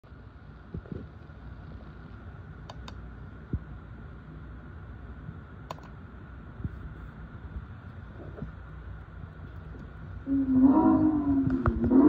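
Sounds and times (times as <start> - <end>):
steady low hum: 0.0 - 12.0
remote buttons clicking: 5.7 - 5.9.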